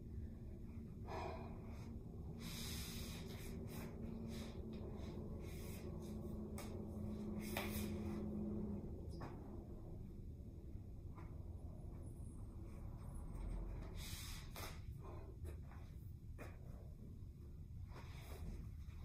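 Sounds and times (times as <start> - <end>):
steady low hum: 0.0 - 19.0
woman breathing sharply: 0.9 - 6.2.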